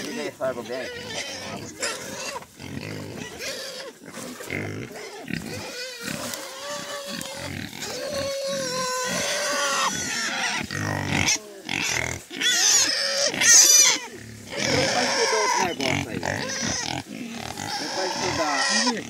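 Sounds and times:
pigs grunting and squealing: 0.0s - 19.0s.

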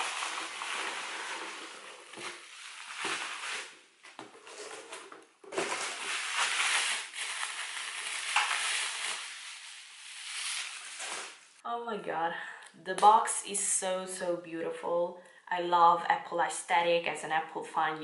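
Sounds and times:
plastic wrapping crinkling: 0.0s - 11.6s.

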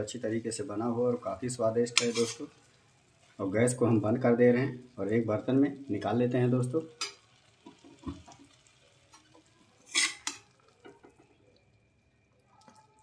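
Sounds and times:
spoon scraping in metal pan: 1.9s - 2.5s, 9.1s - 10.6s.

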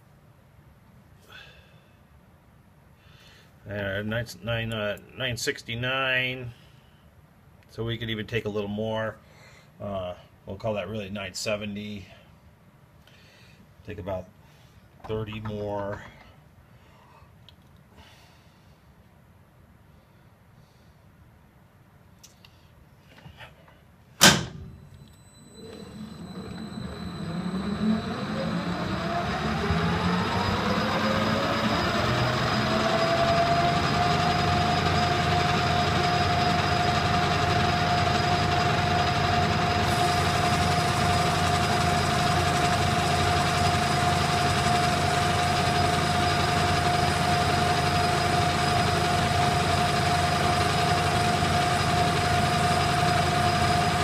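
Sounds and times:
metal lathe motor whining: 25.0s - 54.0s
lathe cutting brass: 25.4s - 54.0s.

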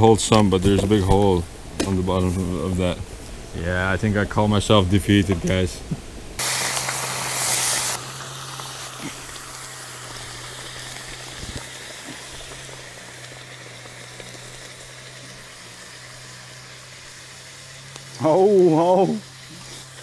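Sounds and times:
hot stone hissing in water: 6.4s - 20.0s.

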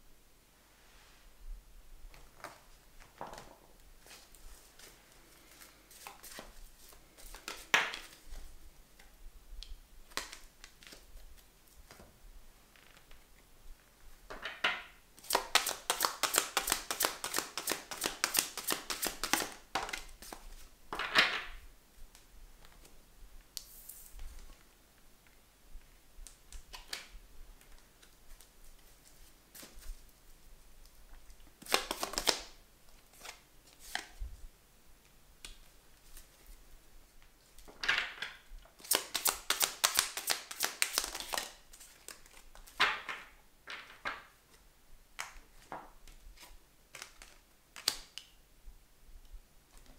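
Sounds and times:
cards being shuffled: 4.0s - 8.5s, 15.2s - 20.6s, 31.6s - 34.2s, 38.8s - 43.1s, 45.6s - 48.2s.

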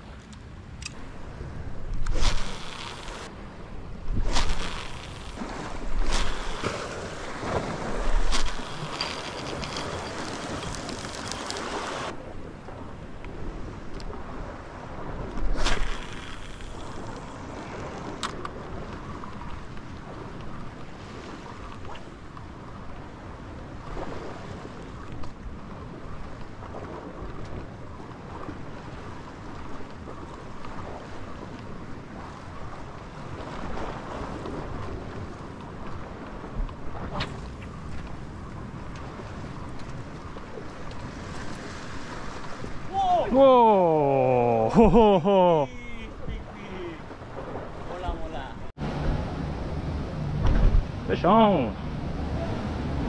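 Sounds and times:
wind buffeting microphone: 0.0s - 44.5s, 45.8s - 51.2s
sea washing against rocks: 1.0s - 22.3s, 22.9s - 48.8s.

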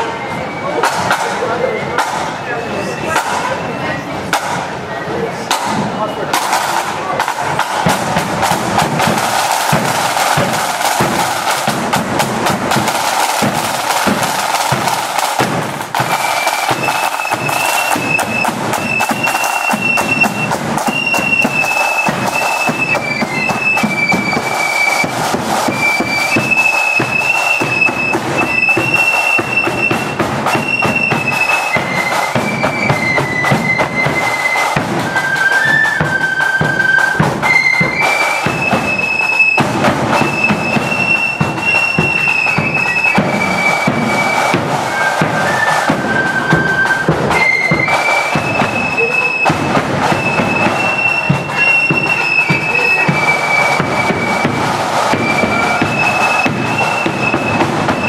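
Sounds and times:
snare and bass drums marching: 0.0s - 4.9s, 5.5s - 58.0s
flutes playing high melody: 0.0s - 58.0s.

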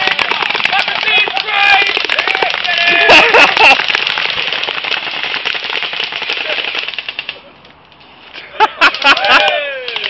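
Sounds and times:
airsoft guns firing: 0.0s - 7.4s
pellets hitting a melon: 0.0s - 7.4s.

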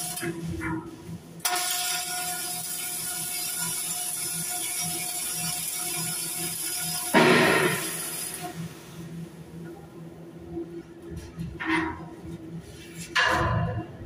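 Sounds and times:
electric arc welding crackling buzz: 0.0s - 0.7s, 1.4s - 9.4s.

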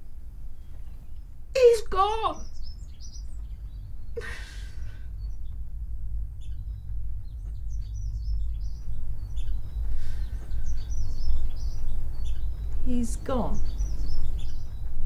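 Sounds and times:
low room rumble: 0.0s - 15.0s
small birds chirping: 0.0s - 15.0s
person exhaling: 4.2s - 5.0s.

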